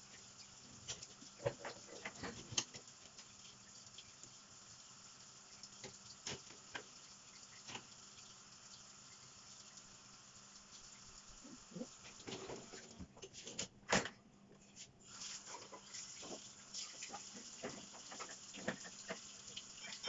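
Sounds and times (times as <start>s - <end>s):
tap running thin stream: 0.0s - 9.8s, 15.1s - 20.0s.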